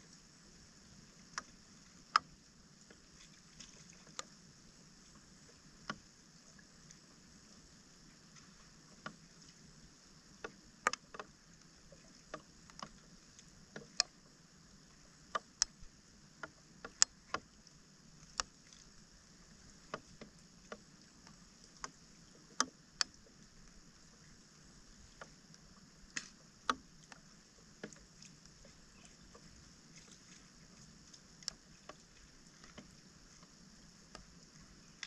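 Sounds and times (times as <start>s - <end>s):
steady high hiss: 0.0s - 35.0s
small water splashes: 1.0s - 4.4s, 16.4s - 35.0s.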